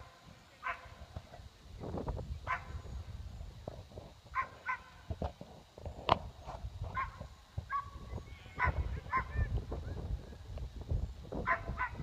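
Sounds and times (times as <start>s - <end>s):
dog barking high-pitched: 4.4s - 4.9s, 7.0s - 8.0s, 8.6s - 9.4s, 11.5s - 12.0s.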